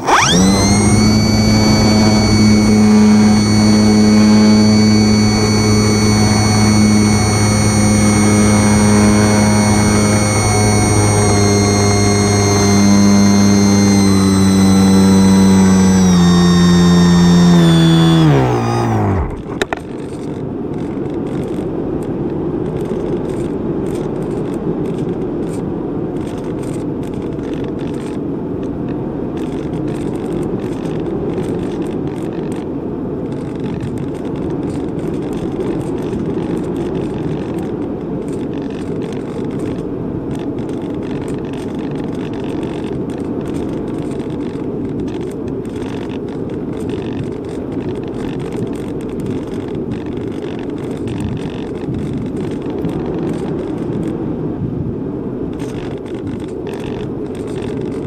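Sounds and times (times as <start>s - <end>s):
electric motor whine: 0.0s - 21.6s, 33.4s - 54.1s
wind noise on microphone: 33.2s - 58.0s.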